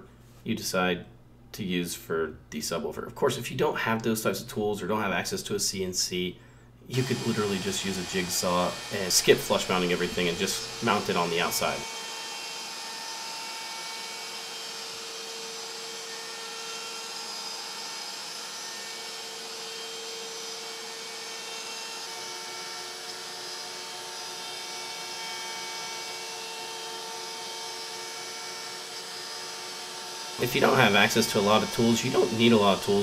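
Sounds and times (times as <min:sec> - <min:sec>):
router spindle whining: 0:06.9 - 0:33.0.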